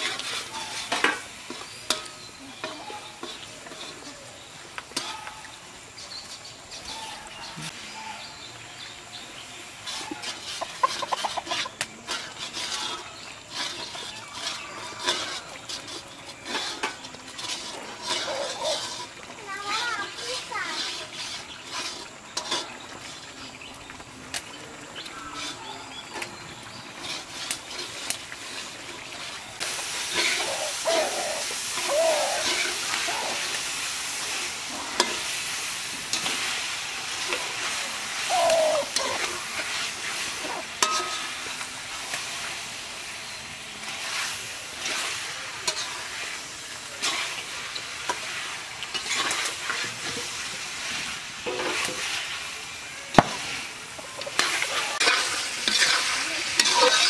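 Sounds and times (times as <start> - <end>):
spoon scraping pan: 0.0 - 7.8, 9.6 - 23.6, 25.0 - 52.4, 53.2 - 57.0
food sizzling: 0.0 - 57.0.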